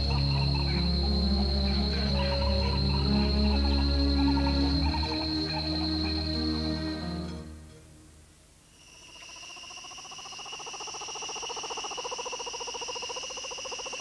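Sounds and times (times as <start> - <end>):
high-pitched insect trills: 0.0 - 7.3, 8.7 - 14.0
background music: 0.0 - 8.3.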